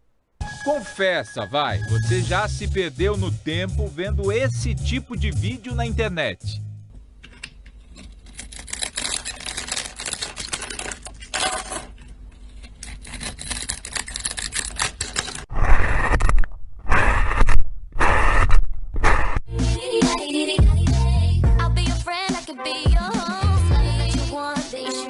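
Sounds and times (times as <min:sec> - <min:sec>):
blade scraping soap: 0:07.5 - 0:19.4.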